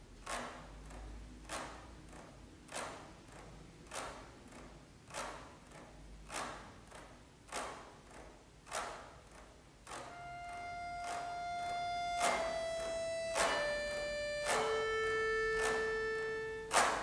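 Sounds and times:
accordion percussive strokes: 9.9 - 17.0
held accordion note: 10.1 - 17.0.

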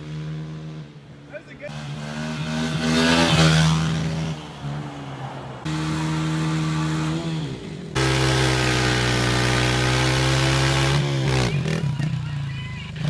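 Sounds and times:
dirt bike engine revving: 0.0 - 13.0.

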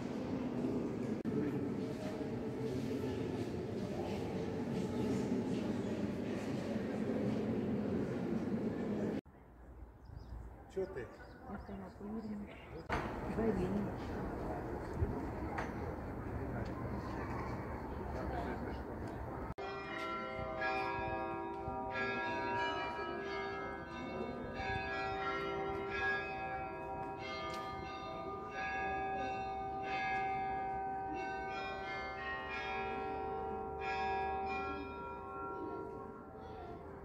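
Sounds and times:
church bells ringing: 19.6 - 37.0.

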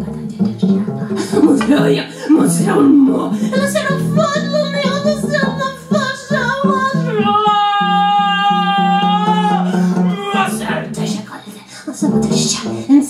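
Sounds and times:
double bass low pulsing note: 0.0 - 7.1
wordless female voice singing: 0.0 - 13.0.

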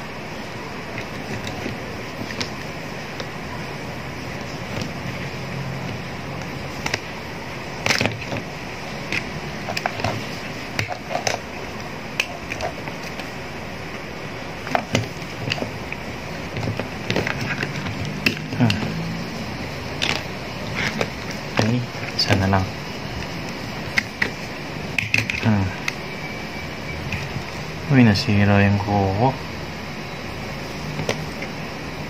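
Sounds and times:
plastic parts clicking: 20.0 - 22.5.

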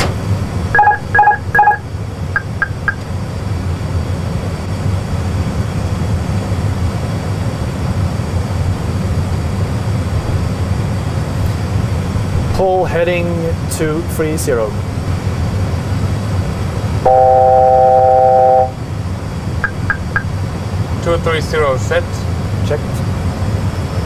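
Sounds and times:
cockpit engine rumble: 0.0 - 24.0
loud warning beeps: 0.7 - 3.0, 17.1 - 18.8, 19.6 - 20.3.

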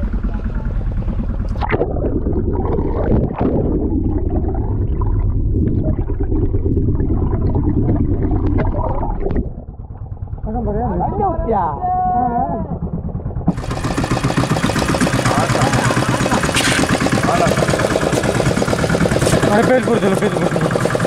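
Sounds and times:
underwater rumble and gurgling: 0.0 - 20.8
boat engine thudding: 0.0 - 21.0
splash into water: 16.4 - 17.0.

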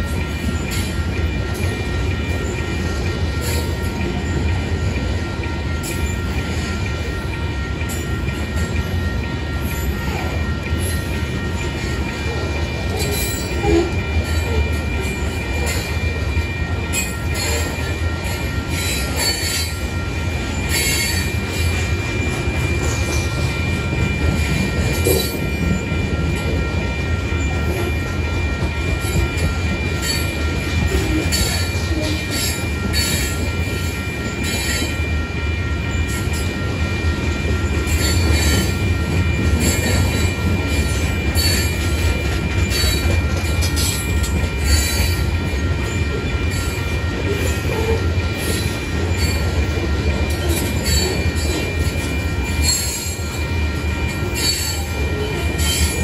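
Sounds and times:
train clicks and clanks: 0.0 - 56.0
train wheels rumbling on rail: 0.0 - 56.0.

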